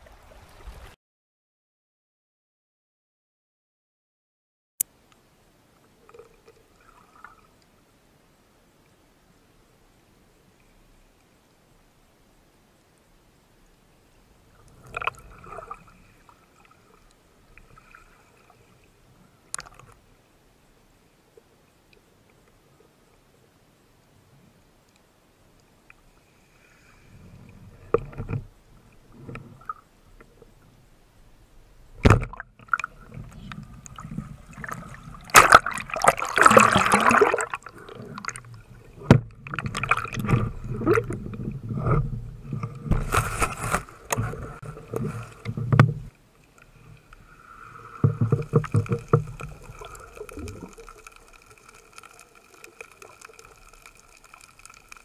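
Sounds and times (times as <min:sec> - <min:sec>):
underwater water rushing: 0:31.9 - 0:55.0
fizzing rushing noise: 0:32.9 - 0:38.6, 0:47.3 - 0:55.0
sharp crack: 0:35.3 - 0:37.2.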